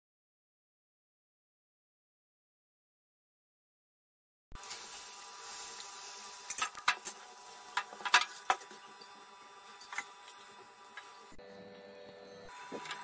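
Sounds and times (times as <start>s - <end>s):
batter sizzling on hot pan: 4.6s - 11.4s.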